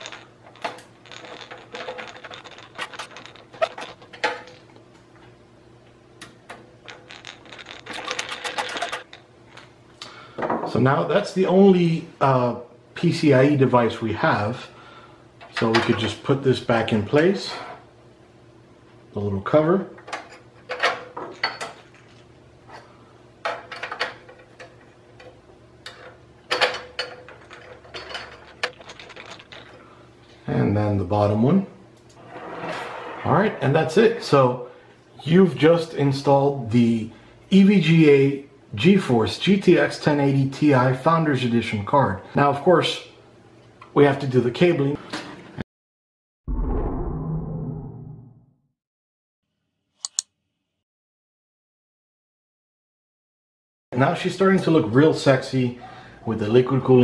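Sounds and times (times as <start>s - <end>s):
screwdriver clicks and scrapes: 50.0s - 50.2s.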